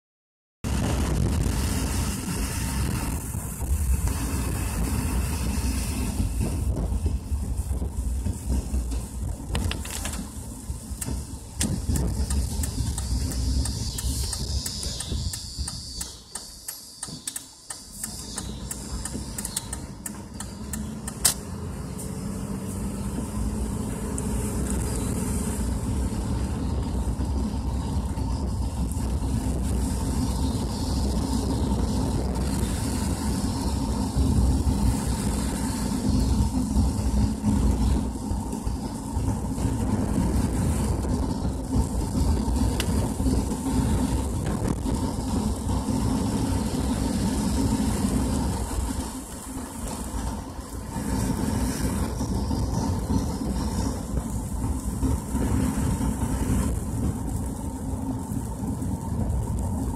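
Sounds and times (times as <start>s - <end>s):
car engine and tyre rumble: 0.6s - 59.9s
wet road hiss: 0.7s - 59.9s
taps and clicks: 11.0s - 21.4s.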